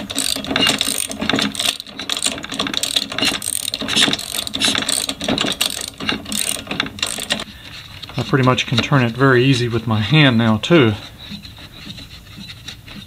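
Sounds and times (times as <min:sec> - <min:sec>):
socket ratchet clicking: 0:00.0 - 0:08.6.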